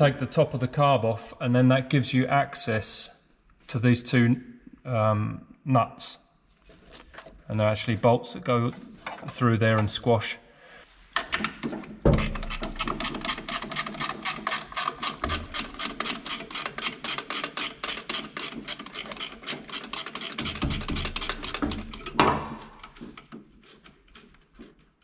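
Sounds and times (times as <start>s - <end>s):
ratchet wrench clicking: 12.2s - 22.9s.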